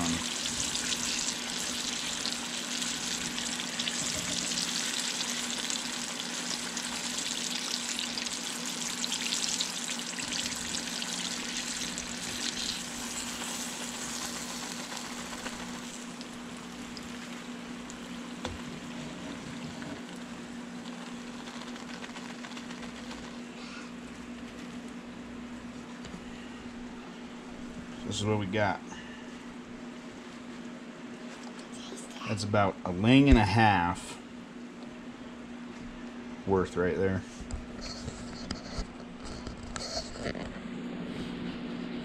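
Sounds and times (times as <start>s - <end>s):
fish deep-frying in sizzling oil: 0.0s - 23.3s.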